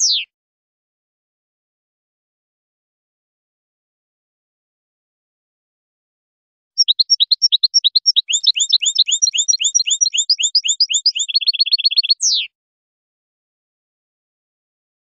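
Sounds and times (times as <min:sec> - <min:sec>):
bird singing high chirps: 0:00.0 - 0:00.3, 0:06.8 - 0:12.5.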